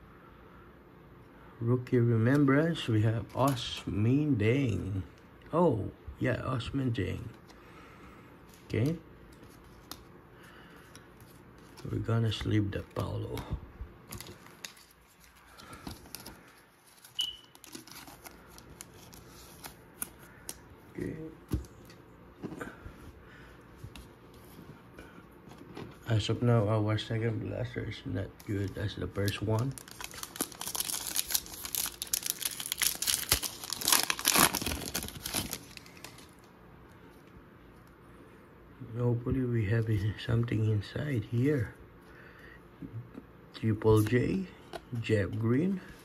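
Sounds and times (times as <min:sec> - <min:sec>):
plastic crinkling: 0:14.1 - 0:20.6, 0:28.4 - 0:36.5.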